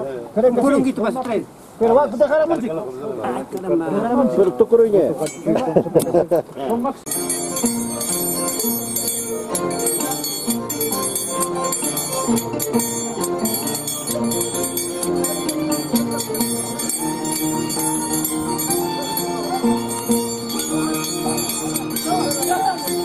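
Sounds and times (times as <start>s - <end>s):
metallic clinking of scissors blades: 7.1s - 23.0s
violin and harp melody: 7.1s - 23.0s.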